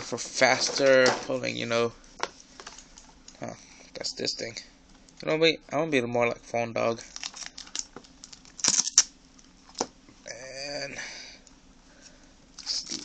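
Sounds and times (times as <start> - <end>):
plastic wrapping crinkling: 7.0 - 9.9.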